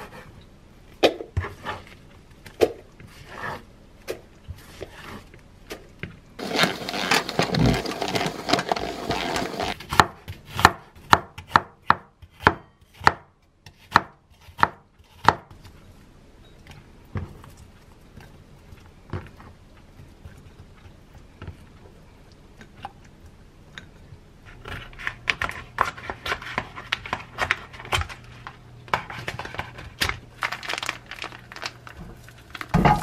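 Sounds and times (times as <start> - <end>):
knife chopping on wooden board: 9.9 - 15.5.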